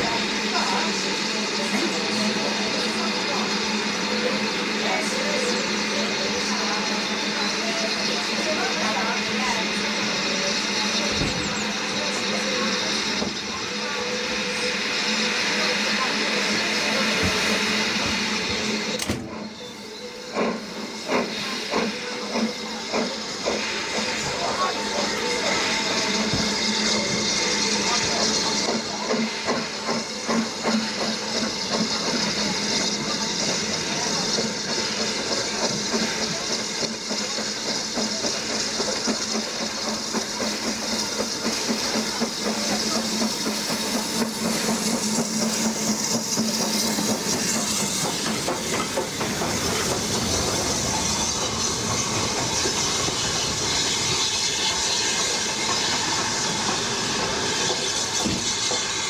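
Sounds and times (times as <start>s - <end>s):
steam hiss: 0.0s - 59.0s
steam train passing: 0.0s - 59.0s.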